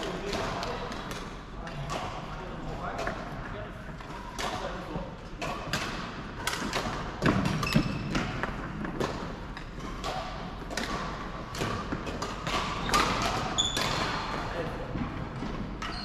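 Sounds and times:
racket hitting shuttlecock: 0:05.4 - 0:14.5
shoe squeaks: 0:07.6 - 0:08.1, 0:13.6 - 0:14.2.

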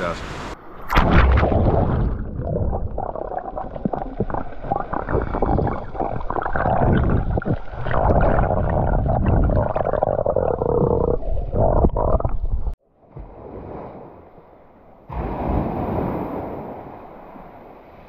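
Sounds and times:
muffled underwater surf rumbling: 0:00.6 - 0:12.8
microphone splashing into water: 0:00.8 - 0:12.7
underwater crackles and clicks: 0:00.8 - 0:12.8.

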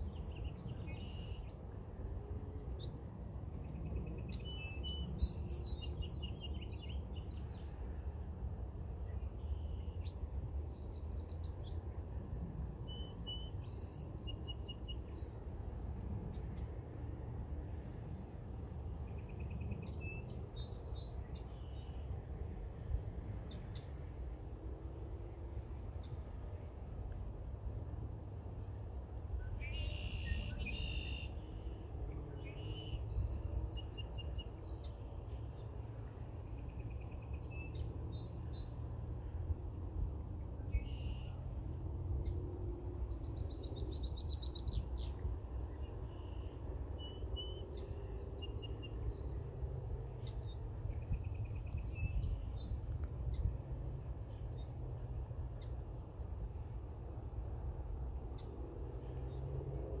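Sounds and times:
birds singing: 0:03.7 - 0:07.7, 0:12.9 - 0:15.3, 0:47.0 - 0:49.3
insect chirping: 0:12.3 - 0:15.4, 0:27.0 - 0:31.9, 0:32.6 - 0:57.4.

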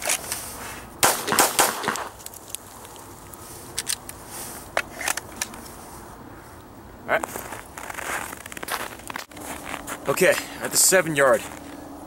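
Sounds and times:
handgun shots: 0:01.0 - 0:02.1.

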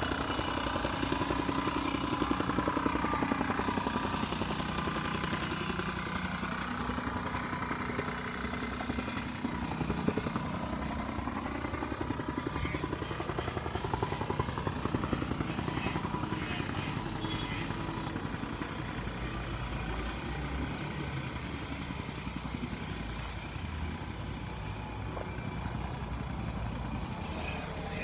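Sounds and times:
road noise on dirt road: 0:00.0 - 0:28.0
vehicle engine rumble: 0:00.0 - 0:28.0.

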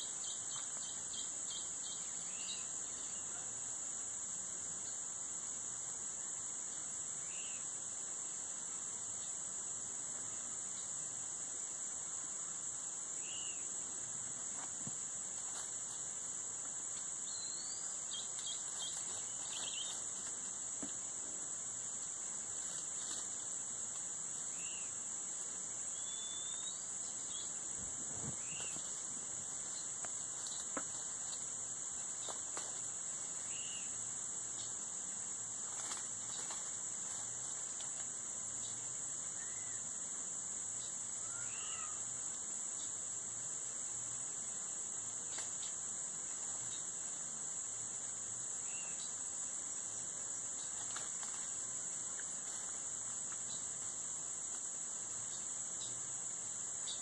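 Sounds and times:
bird chirps: 0:17.3 - 0:20.0, 0:26.0 - 0:27.5
high-pitched insect drone: 0:38.6 - 0:43.0.

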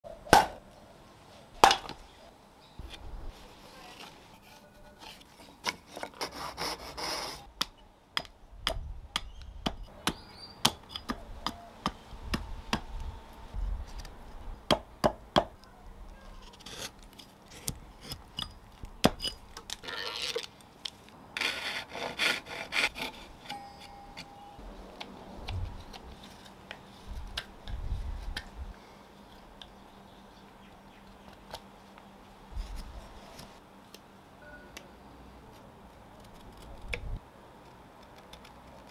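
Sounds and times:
axe chopping on wooden block: 0:00.3 - 0:00.6, 0:14.7 - 0:15.6
saw cutting wood: 0:21.4 - 0:23.6.

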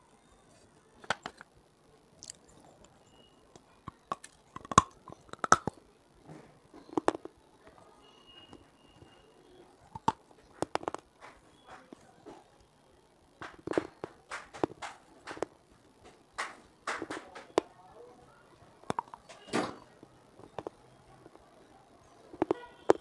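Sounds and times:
grinding chews: 0:02.2 - 0:03.0, 0:03.9 - 0:05.8
biting hard clay cracks: 0:03.9 - 0:05.8.

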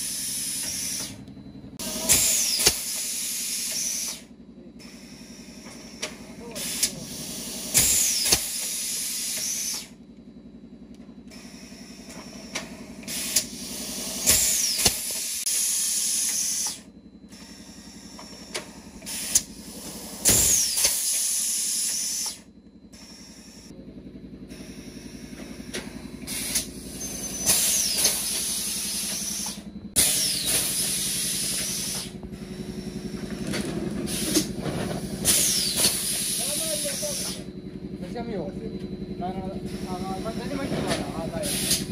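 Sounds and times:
compressed air hissing: 0:00.0 - 0:01.2, 0:01.8 - 0:10.0, 0:11.3 - 0:22.4, 0:26.2 - 0:33.3, 0:34.0 - 0:37.5, 0:39.6 - 0:40.1, 0:41.3 - 0:41.9
steady machine hum: 0:00.0 - 0:41.9.

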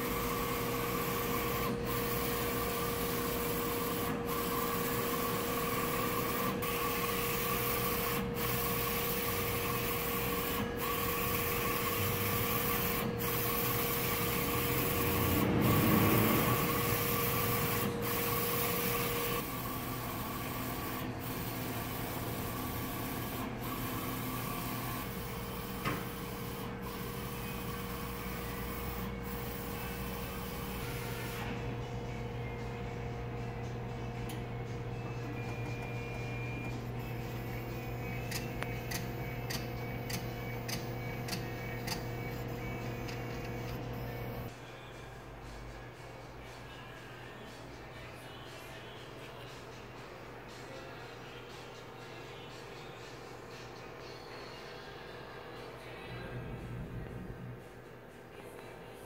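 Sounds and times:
printer mechanical hum: 0:00.0 - 0:44.5.

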